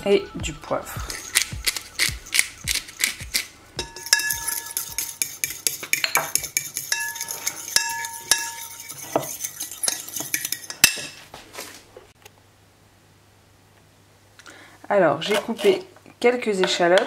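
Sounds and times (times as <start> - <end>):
metal spoon scraping a bowl: 1.0 - 11.2, 15.2 - 15.8
bowl ringing: 3.7 - 10.0.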